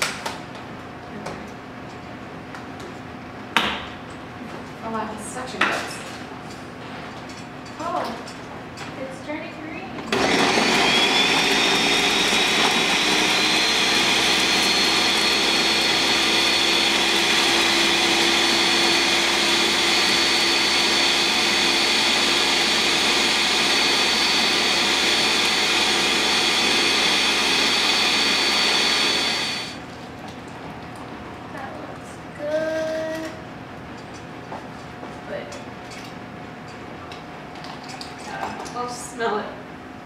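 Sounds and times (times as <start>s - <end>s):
blender motor whine: 10.1s - 29.8s.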